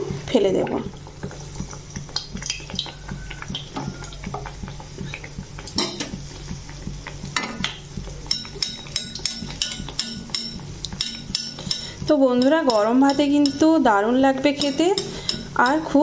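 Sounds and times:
oil crackling while deep-frying: 0.0 - 16.0
metal ladle clinking on pan: 8.3 - 13.8, 14.6 - 16.0.

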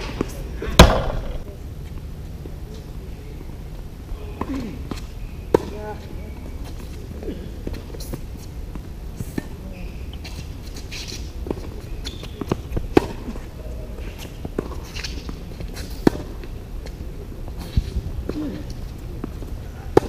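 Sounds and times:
racket striking tennis ball: 0.8 - 1.4
tennis ball bouncing: 0.8 - 1.5, 16.0 - 16.4.

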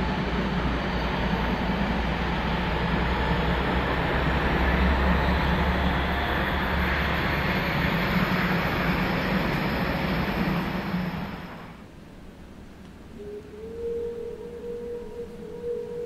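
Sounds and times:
steam train rumbling: 0.0 - 11.9.

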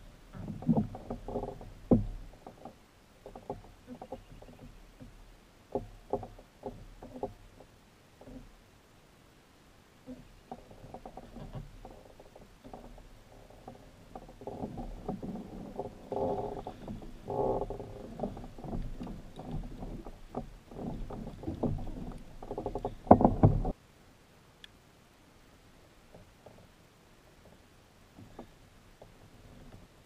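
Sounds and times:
water splashing against kayak: 10.1 - 23.8.

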